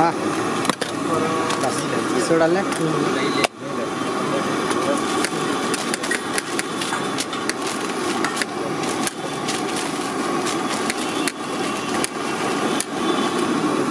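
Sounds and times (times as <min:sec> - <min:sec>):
engine-like background hum: 0:00.0 - 0:13.9
newspaper crackling and rustling: 0:04.9 - 0:13.5.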